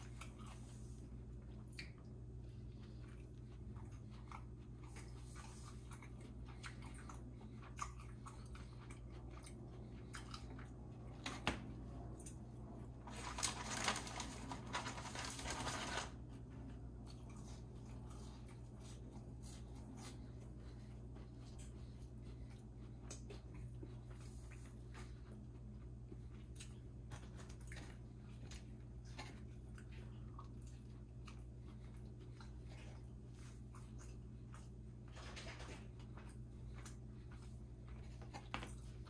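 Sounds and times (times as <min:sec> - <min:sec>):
person chewing crunchy food: 0:00.0 - 0:14.0, 0:16.2 - 0:35.1.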